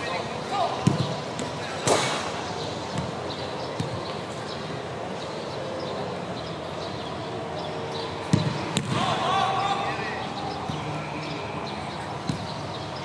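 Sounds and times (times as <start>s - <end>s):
football being kicked: 0.8s - 2.0s, 8.3s - 9.1s.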